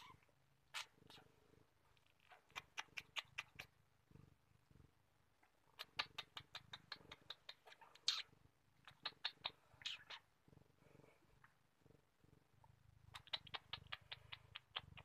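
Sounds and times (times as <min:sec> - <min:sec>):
cat purring: 0:00.0 - 0:15.0.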